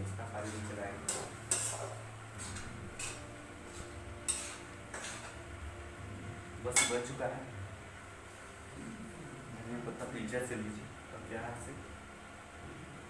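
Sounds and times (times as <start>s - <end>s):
metal spatula scraping a pan: 0.4s - 5.4s.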